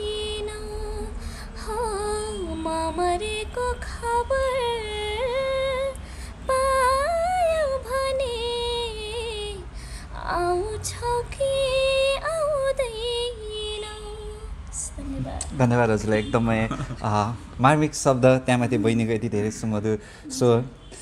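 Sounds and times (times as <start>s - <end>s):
woman singing slow song: 0.0s - 14.9s.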